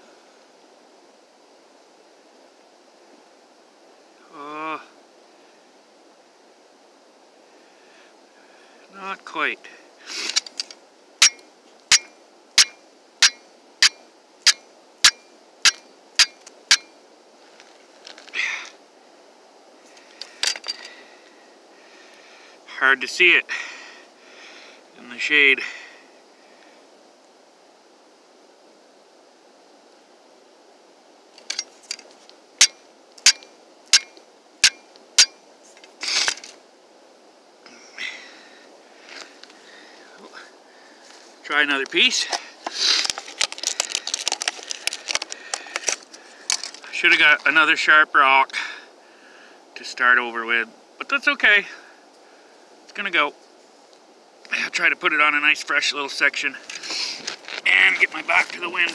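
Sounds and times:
steel striking flint: 10.1s - 17.0s, 20.2s - 21.0s, 31.4s - 36.6s
scraping rustle: 15.7s - 18.4s, 35.6s - 36.6s, 42.1s - 47.6s, 56.6s - 58.9s.

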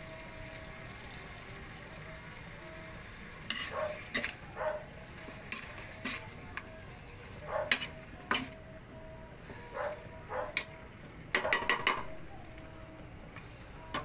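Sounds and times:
chicken sizzling in oil: 0.0s - 14.0s
metal spatula scraping a wok: 3.4s - 4.5s, 5.2s - 6.4s, 7.3s - 8.6s.

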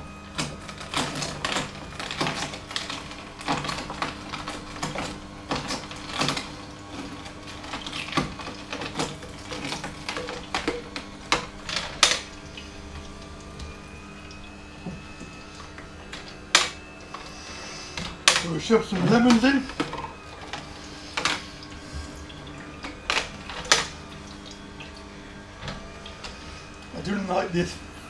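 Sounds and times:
juicer crushing carrots cracking: 0.0s - 28.0s
juicer motor hum: 0.0s - 28.0s.

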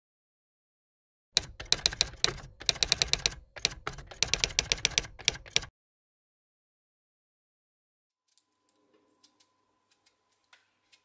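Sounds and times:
typewriter key clacks: 1.4s - 5.7s.

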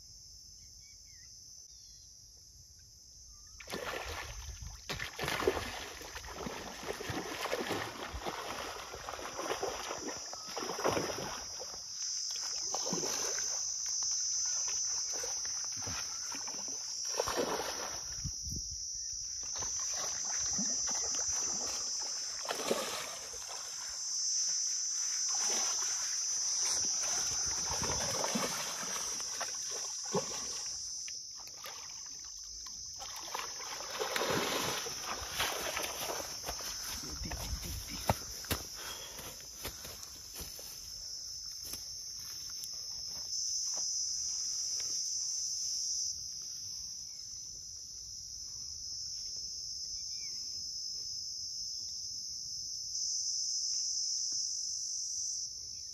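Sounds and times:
high insect buzz: 0.0s - 55.9s
fish thrashing water: 3.6s - 11.7s, 15.1s - 18.1s, 19.5s - 23.8s, 26.6s - 30.8s, 33.0s - 38.3s
man wading through water: 3.6s - 18.4s, 19.4s - 41.6s.

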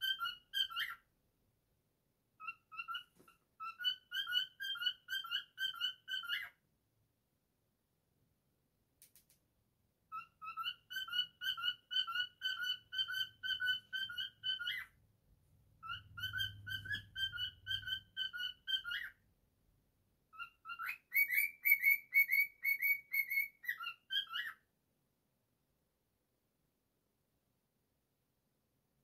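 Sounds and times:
cockatiel whistling: 0.0s - 1.0s, 2.4s - 6.6s, 10.1s - 15.0s, 15.8s - 19.2s, 20.3s - 24.6s.

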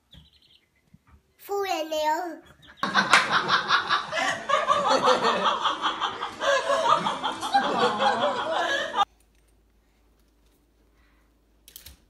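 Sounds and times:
people laughing: 2.8s - 9.1s.

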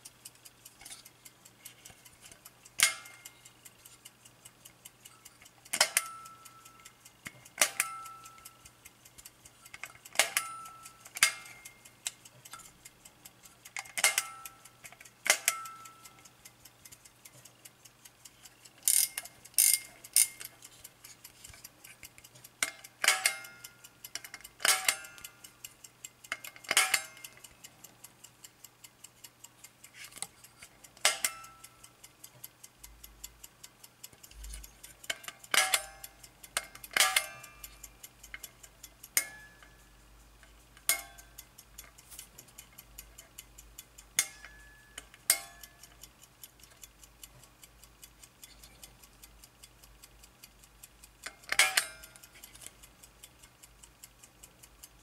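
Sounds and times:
clock ticking fast: 0.0s - 55.0s.

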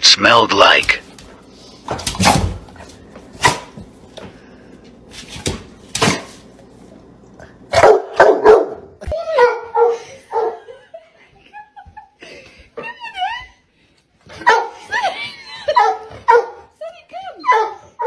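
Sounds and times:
large dog barking: 7.7s - 10.6s, 14.4s - 14.8s, 15.8s - 16.7s, 17.5s - 18.0s.

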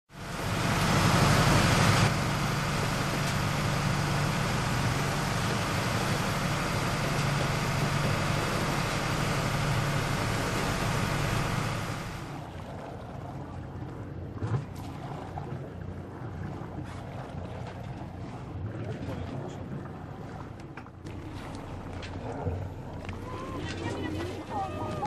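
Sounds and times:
motor humming: 0.2s - 12.6s.

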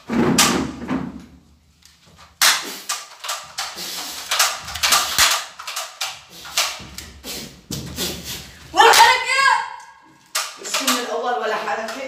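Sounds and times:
toy pistols firing bangs: 2.4s - 6.8s, 10.3s - 11.2s.

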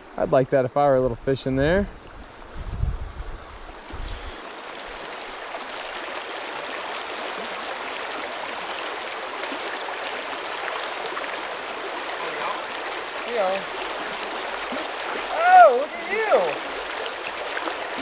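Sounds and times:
river rushing over cobbles: 4.4s - 18.0s.

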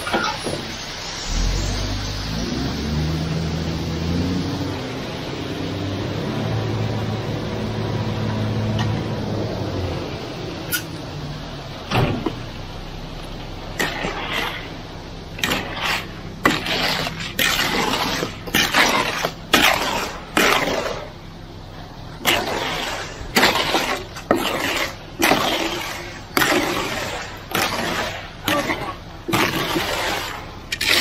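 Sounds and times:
truck engine humming: 0.0s - 31.0s
concrete sloshing down chute: 13.2s - 31.0s.

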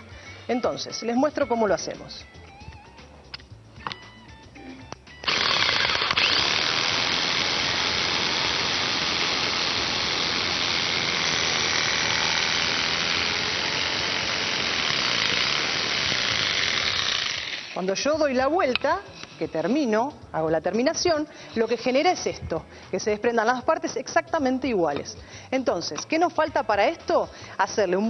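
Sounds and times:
electric jigsaw cutting wood: 5.2s - 17.9s.

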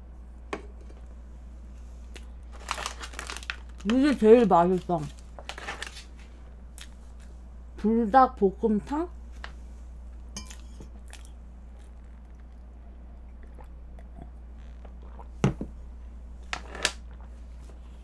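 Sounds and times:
steady low hum: 0.0s - 18.0s
person chewing: 10.4s - 15.4s.

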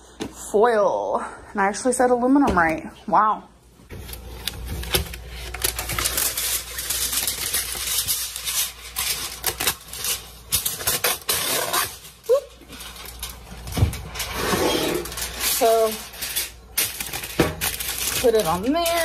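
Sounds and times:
cardboard flap rustling: 3.9s - 16.0s
aluminium foil crinkling: 3.9s - 19.0s.

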